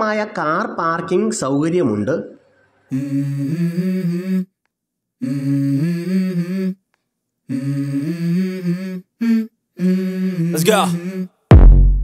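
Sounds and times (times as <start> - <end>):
man humming a melody: 2.9 - 4.6, 5.2 - 6.8, 7.5 - 11.7.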